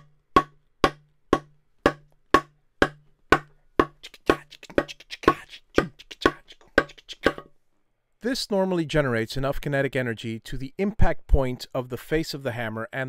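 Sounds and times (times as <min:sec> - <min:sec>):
hammer striking wood: 0:00.0 - 0:04.0
smaller extra knocks: 0:00.0 - 0:04.4.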